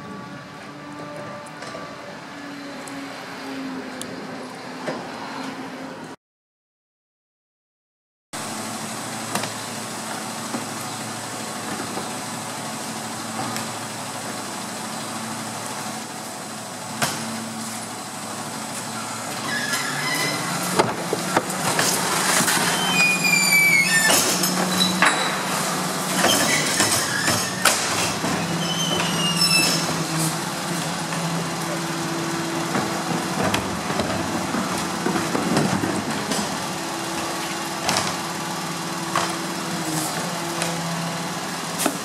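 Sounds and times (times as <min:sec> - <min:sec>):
truck engine running: 0:08.4 - 0:42.0
bin lifter and wheelie bin clanking: 0:18.5 - 0:42.0
short high squeaks: 0:18.9 - 0:20.8, 0:22.3 - 0:25.5, 0:26.1 - 0:30.4.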